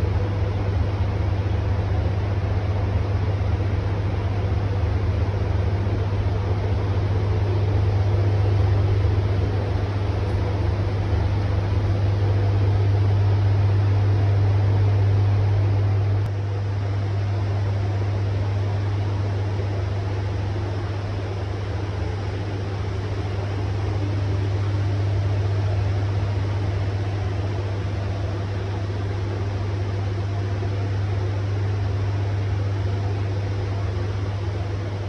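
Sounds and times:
ventilation fans humming: 0.0s - 35.0s.

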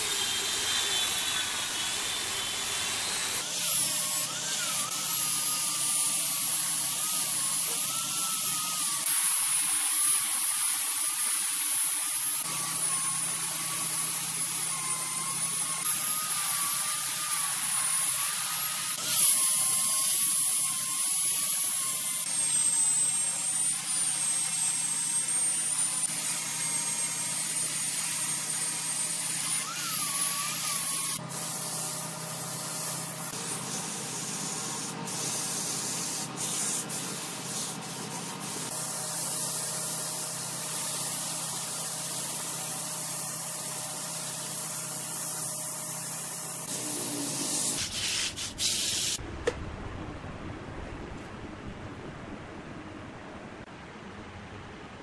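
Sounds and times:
wood lathe turning: 0.0s - 22.3s
tool hissing on spinning wood: 0.0s - 49.2s
low hum: 49.2s - 55.0s.

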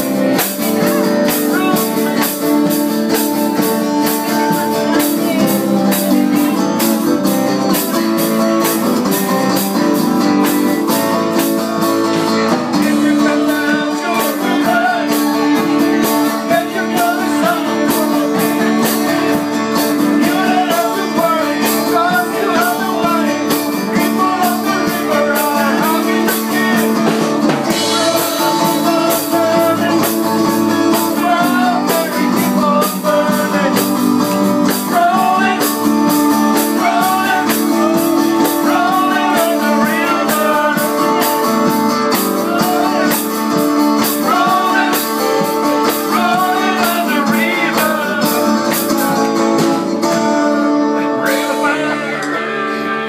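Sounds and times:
men singing together: 0.0s - 11.6s, 12.4s - 49.9s, 51.0s - 53.0s
guitars: 0.0s - 53.0s.

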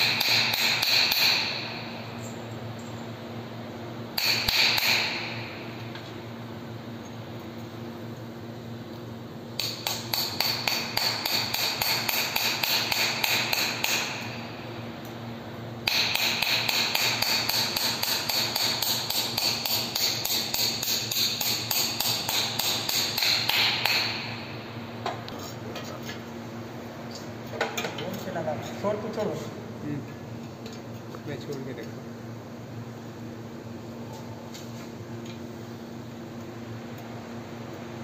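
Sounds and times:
hammer striking steel bolts: 0.0s - 1.6s, 9.6s - 14.3s, 15.8s - 24.3s.

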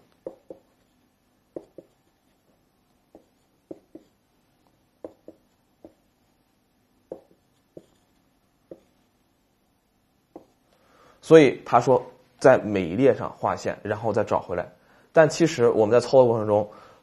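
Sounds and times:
pen tapping on hard surface: 0.1s - 0.7s, 1.5s - 2.0s, 3.1s - 4.2s, 5.0s - 6.0s, 7.1s - 8.0s, 8.7s - 8.9s, 10.3s - 10.6s.

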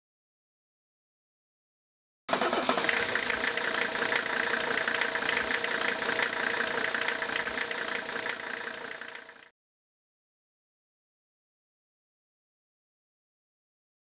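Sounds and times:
diesel engine idling: 2.3s - 9.5s.

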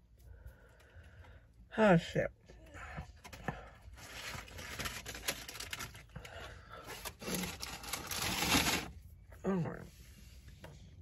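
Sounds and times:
crackly wrapper handling: 4.0s - 8.9s.

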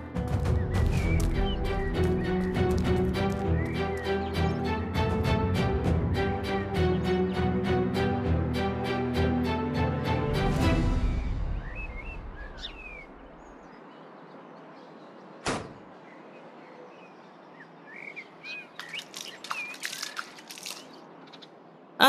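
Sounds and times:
small birds chirping: 0.0s - 4.8s, 11.1s - 22.0s.

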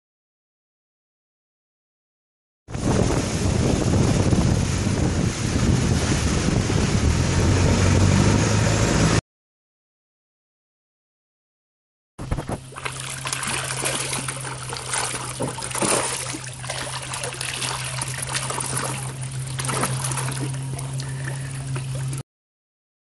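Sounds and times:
water splashing against a boat: 2.7s - 9.2s, 12.2s - 22.2s
fish thrashing at the surface: 12.2s - 22.2s
steady low hum: 12.2s - 22.2s.

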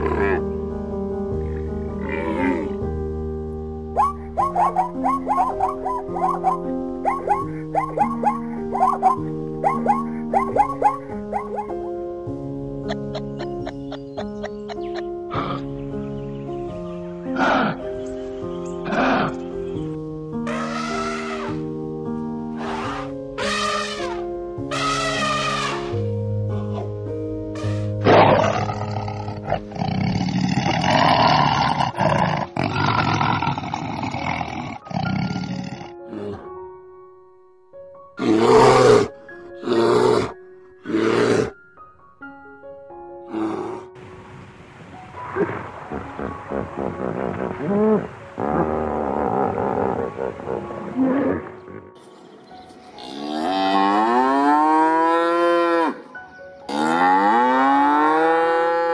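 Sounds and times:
tiger roaring: 28.0s - 36.4s, 45.4s - 52.0s
cow mooing: 48.0s - 52.0s, 53.0s - 56.1s, 56.7s - 58.9s.

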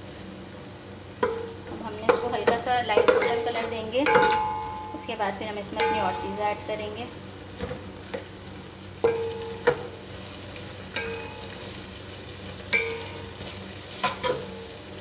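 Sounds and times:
onions sizzling in hot oil: 0.0s - 15.0s.

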